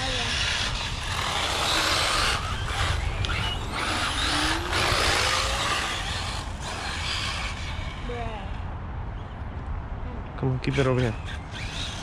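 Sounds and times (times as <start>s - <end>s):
motor whine: 0.0s - 8.1s, 11.0s - 12.0s
electric toy cars driving on concrete: 0.0s - 8.6s, 10.6s - 12.0s.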